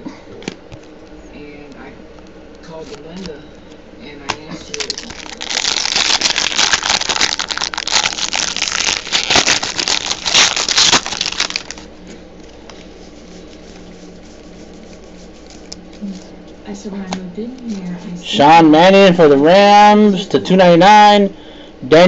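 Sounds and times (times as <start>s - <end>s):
foil wrapper crinkling: 4.6s - 11.9s, 14.7s - 16.1s.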